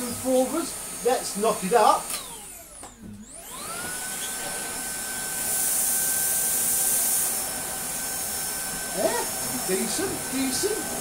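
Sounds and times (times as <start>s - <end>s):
vacuum cleaner motor whine: 0.0s - 11.0s
vacuum floor tool rushing hiss: 0.0s - 11.0s.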